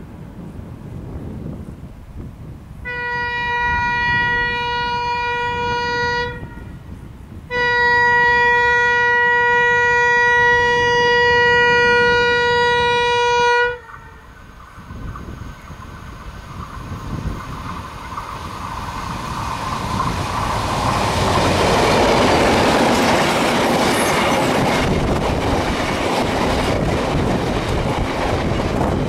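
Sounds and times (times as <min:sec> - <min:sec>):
locomotive horn blasts: 0:02.8 - 0:06.8, 0:07.5 - 0:14.3.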